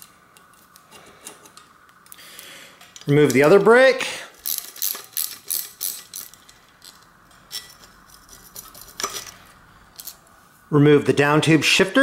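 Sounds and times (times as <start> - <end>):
metal parts knocking together: 4.4 - 9.4.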